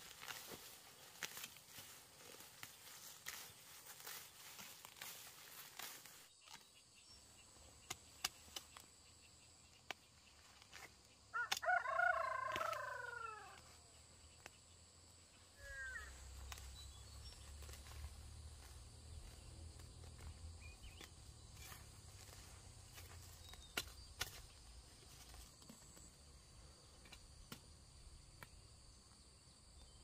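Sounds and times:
machete cutting weeds: 0:00.0 - 0:07.1, 0:07.7 - 0:09.1, 0:16.2 - 0:25.9
rooster crowing: 0:11.3 - 0:13.6.

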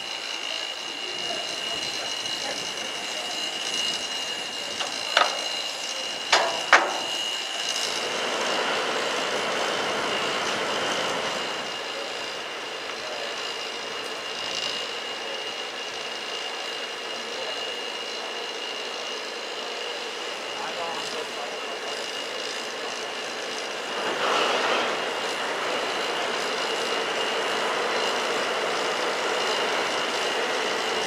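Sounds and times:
high-pitched whine: 0:00.0 - 0:16.6
steam locomotive hissing: 0:00.0 - 0:31.0
sharp knocks: 0:06.3 - 0:07.2.

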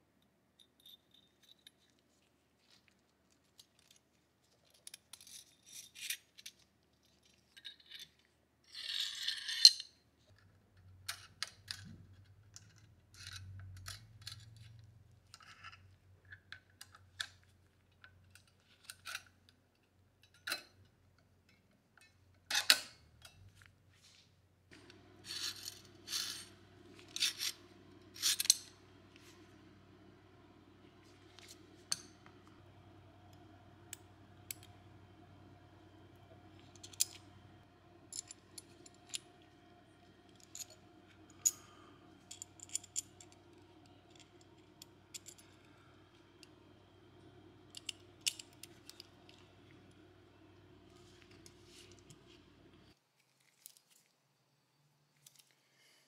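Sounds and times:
faint low hum: 0:08.9 - 0:53.0
metallic clicks and scrapes: 0:11.0 - 0:16.0, 0:24.7 - 0:29.4, 0:36.6 - 0:37.5, 0:38.1 - 0:39.6, 0:40.2 - 0:49.5.

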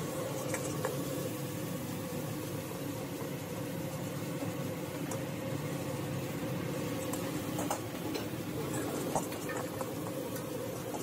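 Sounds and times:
wok stove roaring: 0:00.0 - 0:11.0.

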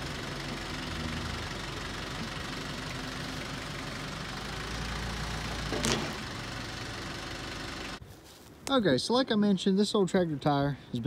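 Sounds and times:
tractor engine running: 0:00.0 - 0:08.0.

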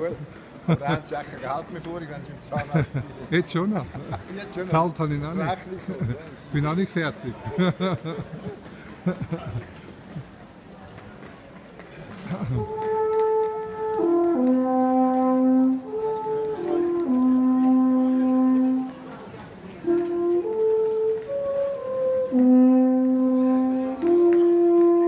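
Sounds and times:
alphorn long held notes: 0:12.2 - 0:25.0.

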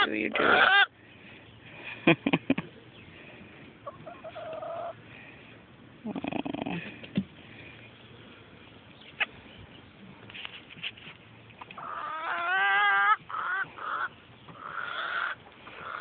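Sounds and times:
hen making soft low calls: 0:06.0 - 0:07.0.

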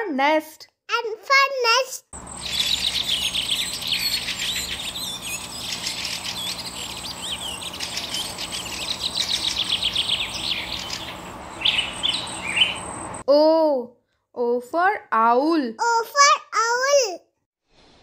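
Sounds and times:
small birds chirping: 0:02.2 - 0:13.3
thin steady high tone: 0:02.2 - 0:13.3.

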